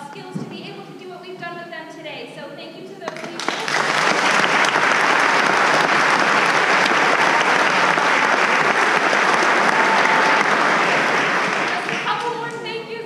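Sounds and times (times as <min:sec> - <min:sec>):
audience applauding: 0:03.1 - 0:12.6.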